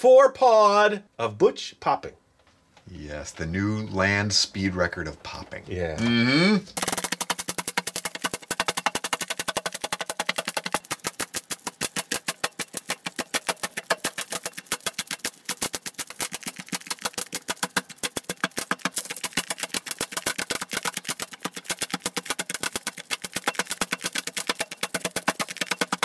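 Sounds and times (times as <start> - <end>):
bubble wrap popping: 6.7 - 26.0.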